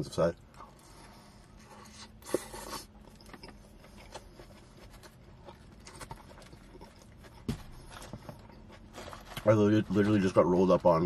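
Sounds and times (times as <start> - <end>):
chewing with mouth clicks: 1.6 - 9.4
wrapper rustle: 8.7 - 10.4.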